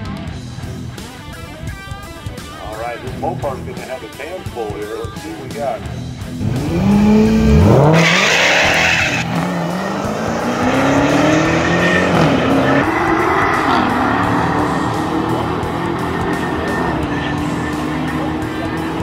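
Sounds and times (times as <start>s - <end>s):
car engines revving through gears: 6.1s - 19.0s
tire spinning squeal: 7.0s - 9.5s, 10.4s - 18.2s.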